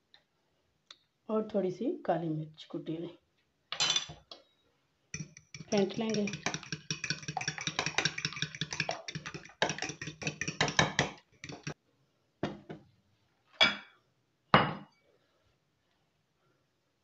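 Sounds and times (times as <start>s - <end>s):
fork beating eggs in bowl: 5.2s - 11.8s.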